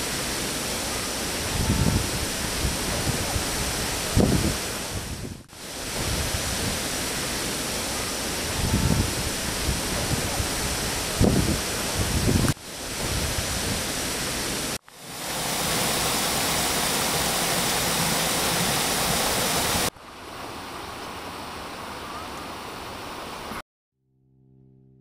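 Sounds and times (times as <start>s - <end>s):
water rushing in lock chamber: 0.0s - 23.6s.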